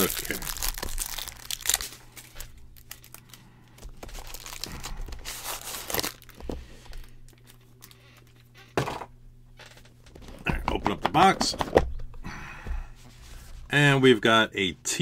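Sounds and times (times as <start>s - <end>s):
plastic wrap crinkling and tearing: 0.0s - 8.0s.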